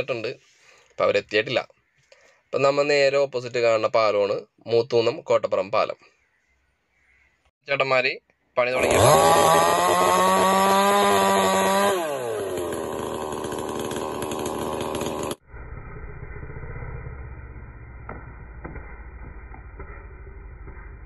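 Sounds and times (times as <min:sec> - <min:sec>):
chainsaw revving: 0:08.7 - 0:15.4
low rumble: 0:15.4 - 0:21.0.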